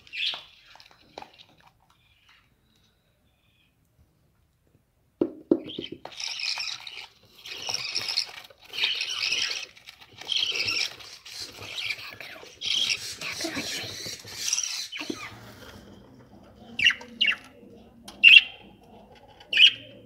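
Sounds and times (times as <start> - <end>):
budgerigar chicks calling: 18.2 - 18.6.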